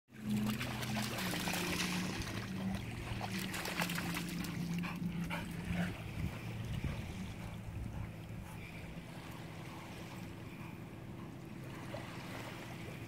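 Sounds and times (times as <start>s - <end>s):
dog splashing through water: 0.1s - 8.2s
steady low hum: 0.2s - 13.0s.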